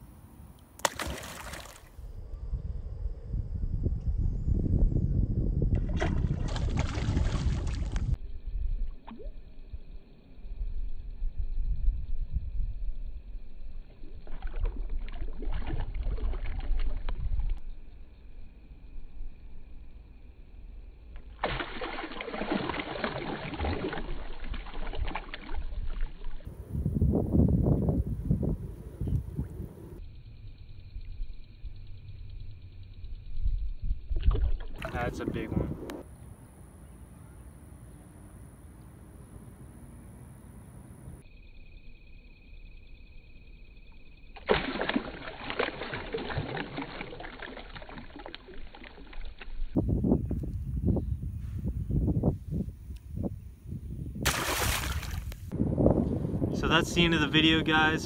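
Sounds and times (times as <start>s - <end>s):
water splashing and churning: 0.8s - 2.0s, 5.7s - 8.2s, 13.9s - 17.6s, 21.3s - 26.5s, 34.2s - 35.6s, 44.4s - 49.8s, 54.2s - 55.5s.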